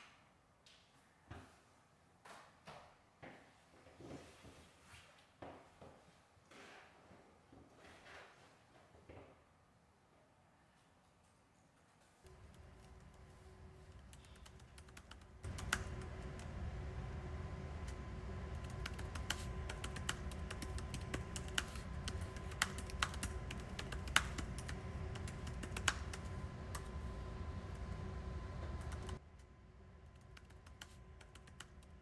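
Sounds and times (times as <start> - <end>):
steady low hum: 12.2 - 32.0.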